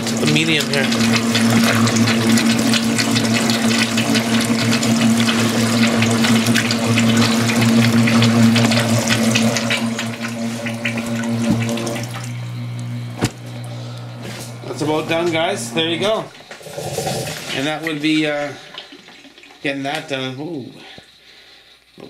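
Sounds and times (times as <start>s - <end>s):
gurgling slurping water and air: 0.0s - 19.6s
pump motor hum: 0.0s - 21.8s.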